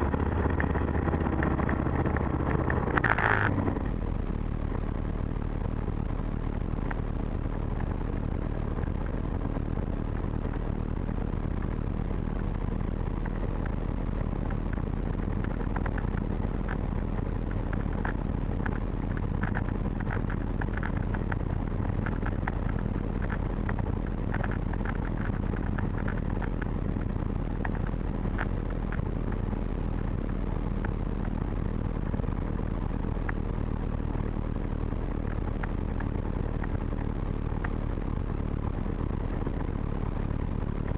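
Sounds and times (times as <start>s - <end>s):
aircraft engine idling: 0.0s - 40.9s
faint clicks: 13.1s - 29.5s.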